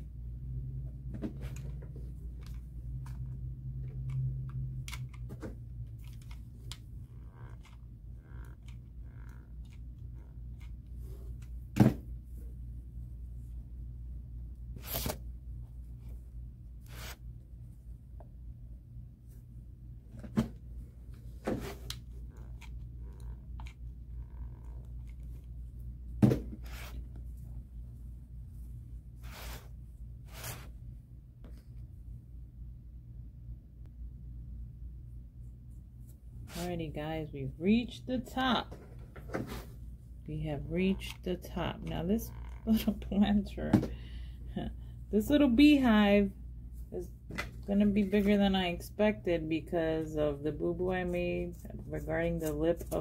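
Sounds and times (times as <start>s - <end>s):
steady low hum: 0.0s - 53.0s
rope rustling and scraping: 29.1s - 30.8s.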